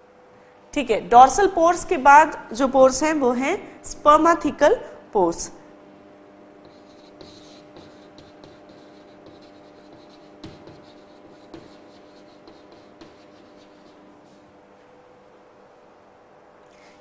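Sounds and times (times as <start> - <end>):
faint steady hum: 0.0 - 17.0
chalk writing on a blackboard: 6.6 - 14.4.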